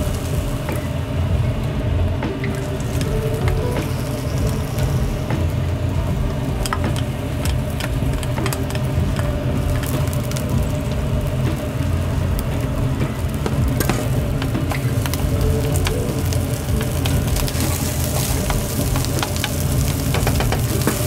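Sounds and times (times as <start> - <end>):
low rumble: 0.0 - 21.0
rice frying: 0.0 - 21.0
wooden spatula scraping a wok: 13.2 - 21.0.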